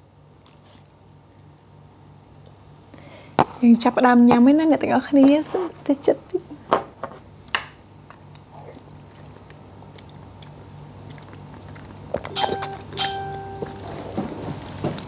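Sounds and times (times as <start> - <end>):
wet chewing: 7.4 - 15.0
spoon and mouth clicks: 12.2 - 13.9.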